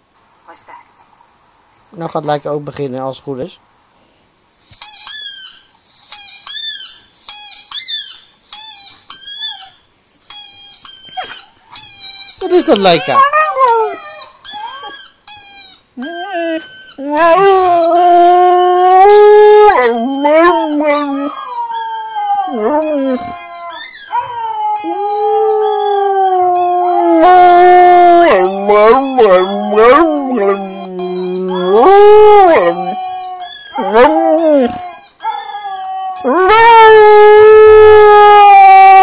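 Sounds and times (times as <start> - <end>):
husky howling: 12.6 - 14.9, 16.0 - 39.0.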